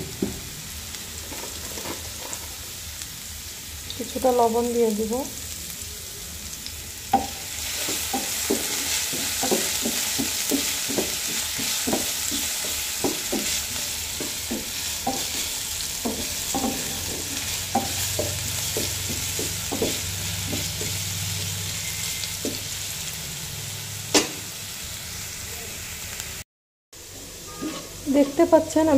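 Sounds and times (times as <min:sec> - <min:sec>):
potato sticks sizzling in oil: 0:00.0 - 0:26.4, 0:27.1 - 0:28.9
wooden spatula scraping a pan: 0:01.2 - 0:02.5, 0:07.6 - 0:21.0, 0:27.5 - 0:28.5.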